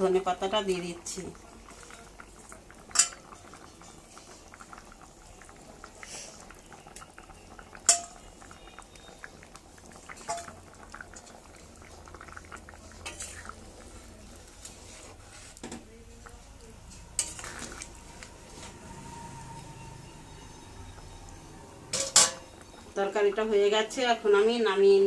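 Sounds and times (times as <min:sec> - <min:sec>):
curry bubbling in a pan: 0:00.0 - 0:25.0
metal utensils clinking on pan: 0:02.9 - 0:04.0, 0:07.8 - 0:08.2, 0:10.2 - 0:10.6, 0:13.0 - 0:13.5, 0:16.9 - 0:17.8, 0:21.9 - 0:22.6.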